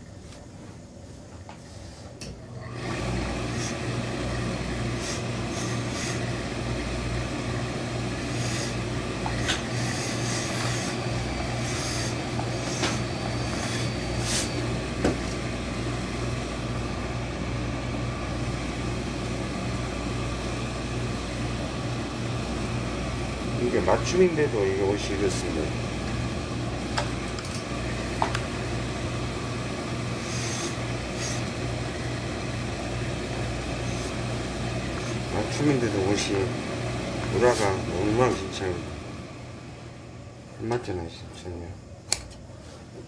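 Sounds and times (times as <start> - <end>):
steady motor hum: 0.0 - 43.0
steam iron hissing: 1.6 - 16.8, 29.6 - 36.6.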